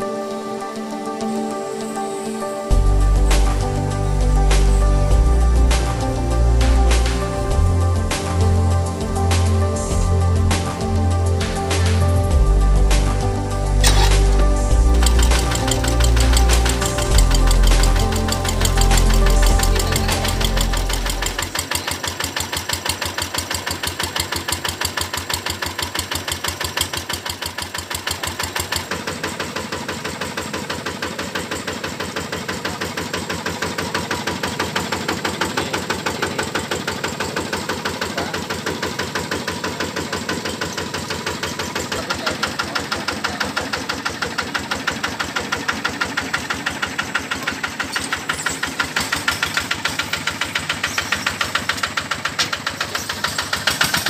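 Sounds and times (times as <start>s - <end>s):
diesel engine running: 12.2s - 54.0s.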